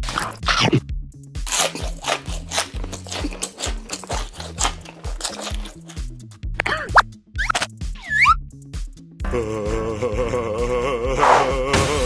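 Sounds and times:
crunchy chewing of corn on the cob: 0.0 - 6.4
light background music with bass: 0.0 - 12.0.

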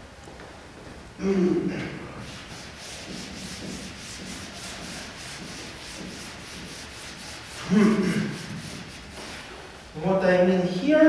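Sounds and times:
eraser rubbing blackboard: 2.2 - 9.6.

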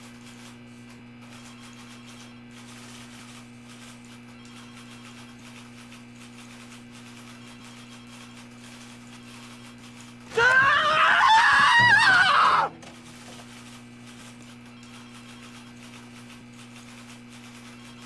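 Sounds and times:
shrill scream: 10.3 - 12.8.

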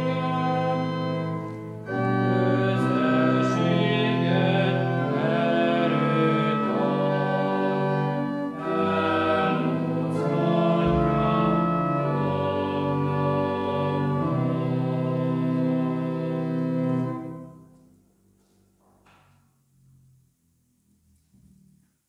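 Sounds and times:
voices singing a hymn: 0.0 - 17.2
organ chords: 0.0 - 18.4.

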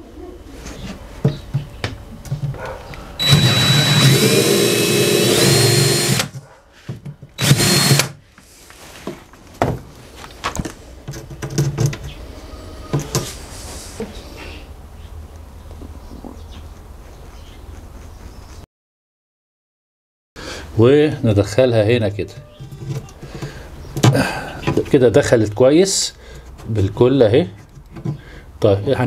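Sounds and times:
handling knocks and clicks: 0.9 - 3.0, 9.1 - 12.2
cordless drill whining: 3.2 - 6.3, 7.4 - 8.2.

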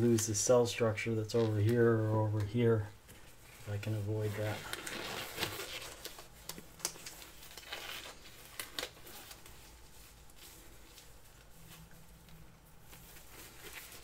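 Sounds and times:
handling rustles: 1.3 - 14.0.

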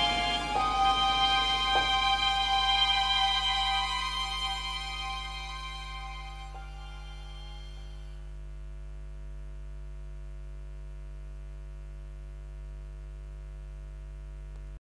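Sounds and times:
soundtrack music: 0.0 - 8.1
faint buzz: 0.0 - 14.7
low electrical hum: 0.0 - 14.8.

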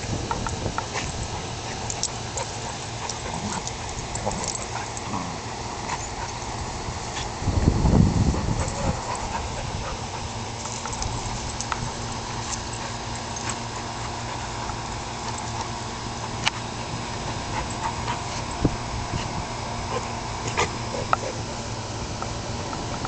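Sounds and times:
dogs growling in play: 0.0 - 21.8
small clicks and rustles: 0.3 - 5.2.

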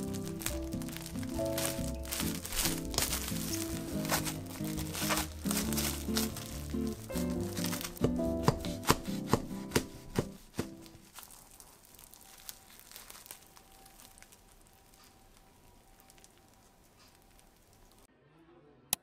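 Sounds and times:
light background music: 0.0 - 11.1
faint handling sounds: 0.0 - 18.1.

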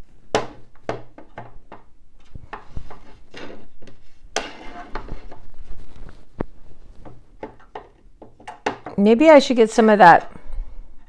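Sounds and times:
rustling: 2.2 - 7.9
ornaments clicking and knocking: 6.4 - 9.1.

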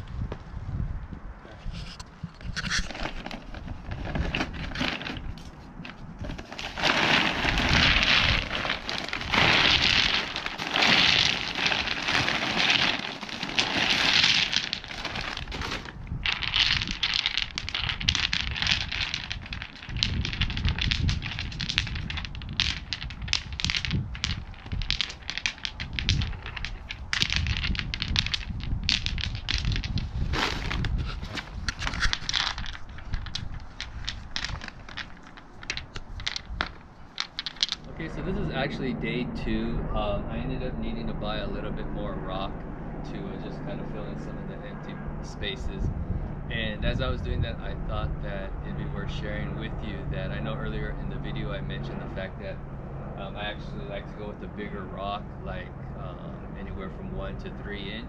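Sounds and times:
stones knocking together: 2.5 - 37.9
pebbles clattering from a bag: 2.8 - 37.9.

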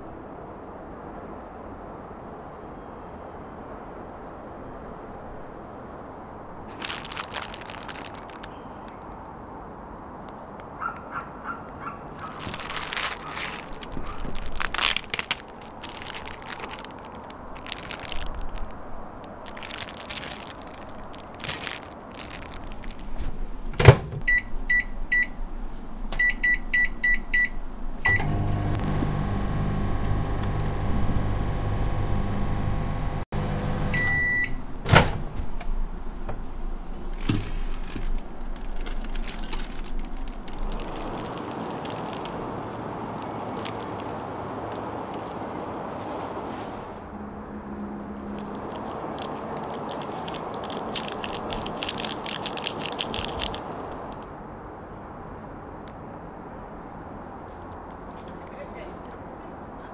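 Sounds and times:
plastic packaging crinkling: 6.7 - 9.0, 12.1 - 23.7, 36.3 - 45.6, 48.2 - 54.3
microwave door clunk: 23.8 - 24.2
microwave keypad beeps: 24.3 - 25.4, 26.2 - 28.4, 33.9 - 34.6
microwave long beep: 24.3 - 25.4, 26.2 - 34.6
microwave humming: 28.0 - 35.7.

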